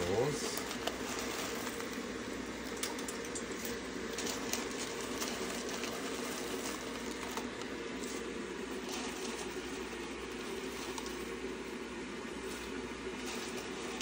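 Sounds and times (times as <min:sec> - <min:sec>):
water boiling: 0:00.0 - 0:14.0
noodles dropped in water ticks: 0:02.6 - 0:05.8.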